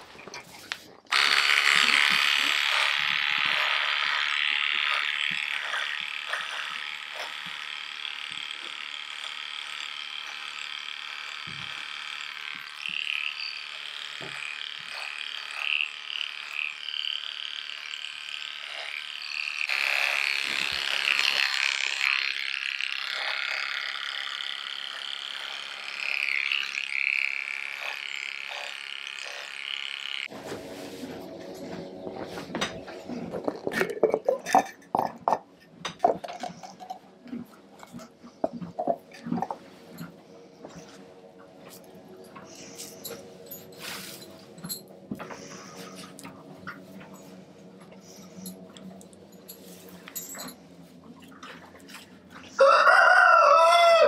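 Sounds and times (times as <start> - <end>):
electric clippers buzzing: 1.1 - 32.2.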